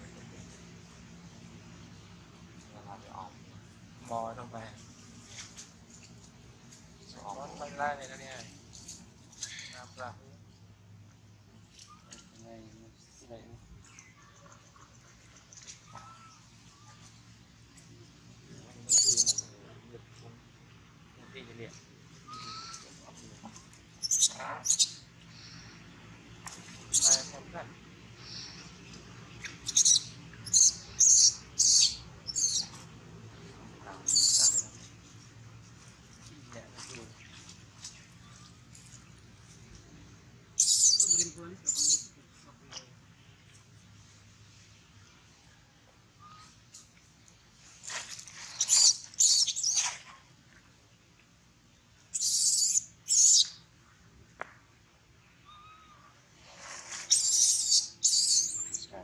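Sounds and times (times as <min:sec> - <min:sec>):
baby monkey crying: 0:18.9 - 0:19.4, 0:22.3 - 0:22.9, 0:24.0 - 0:24.9, 0:27.0 - 0:27.3, 0:29.6 - 0:32.7, 0:34.1 - 0:34.6, 0:40.6 - 0:42.1, 0:52.2 - 0:53.4, 0:55.4 - 0:56.1, 0:57.1 - 0:58.9.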